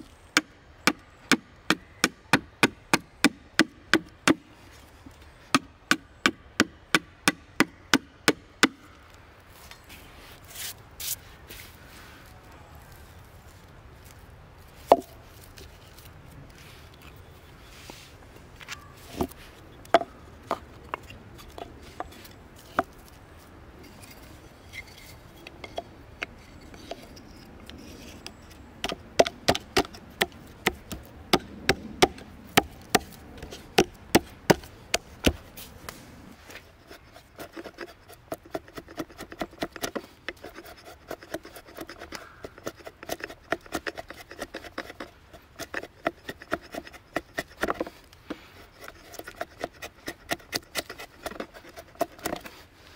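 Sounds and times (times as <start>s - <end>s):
drawknife shaving wood: 26.3s - 52.9s
sharp wooden knocks: 28.8s - 35.4s.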